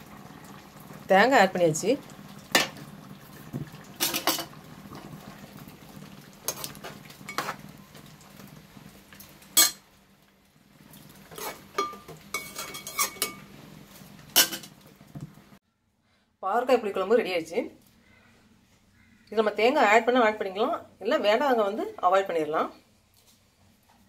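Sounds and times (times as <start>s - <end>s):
metal spoon scraping a pot: 6.5s - 7.7s, 11.3s - 13.4s.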